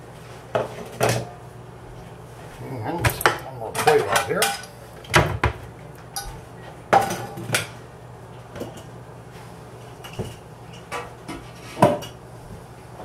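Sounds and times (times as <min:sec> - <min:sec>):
dishes clattering on counter: 0:06.2 - 0:07.8, 0:10.0 - 0:12.2.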